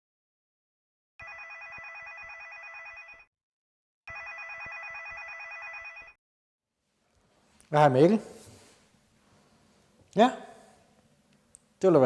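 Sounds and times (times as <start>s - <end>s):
mobile phone ringing: 1.2s - 3.3s, 4.1s - 6.2s.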